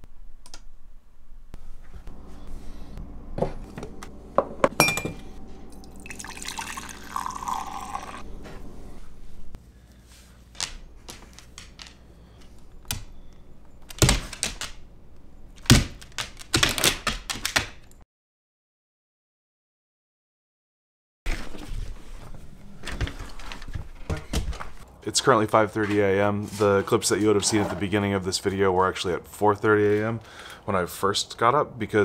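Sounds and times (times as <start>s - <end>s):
liquid pouring: 5.7s - 8.3s.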